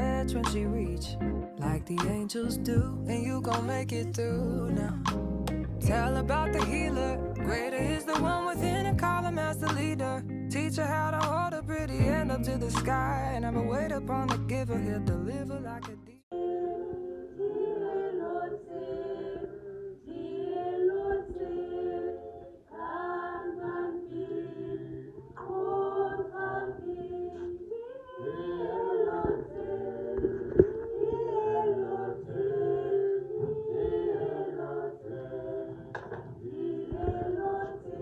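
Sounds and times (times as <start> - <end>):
choir singing in harmony: 16.4 - 38.0.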